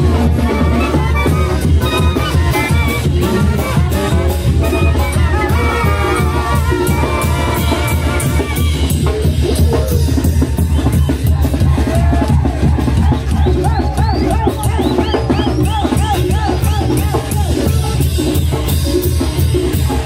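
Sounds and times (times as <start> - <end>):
brass band playing: 0.0 - 20.0
drums and cymbals: 0.0 - 20.0.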